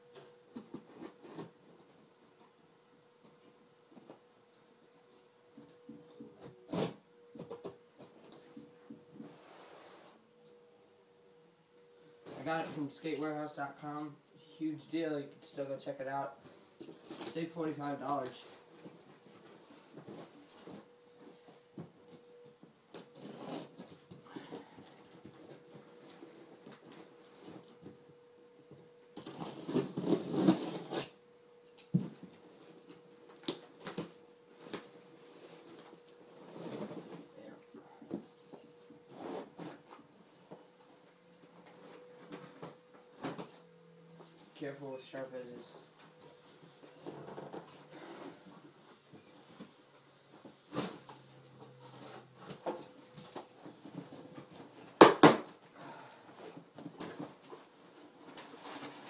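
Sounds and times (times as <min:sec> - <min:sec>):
cardboard rustling and scraping: 0:00.5 - 0:02.5, 0:16.3 - 0:28.0, 0:28.9 - 0:31.2, 0:32.0 - 0:55.5, 0:56.2 - 0:59.0.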